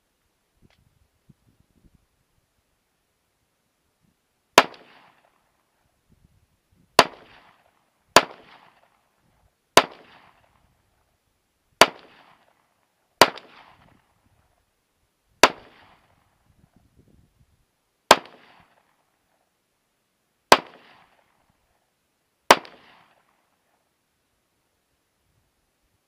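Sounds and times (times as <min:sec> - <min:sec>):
pistol shots with echo: 0:04.6 - 0:05.4, 0:07.0 - 0:09.0, 0:09.8 - 0:10.5, 0:11.8 - 0:12.5, 0:18.1 - 0:18.9, 0:20.5 - 0:21.3, 0:22.5 - 0:23.3.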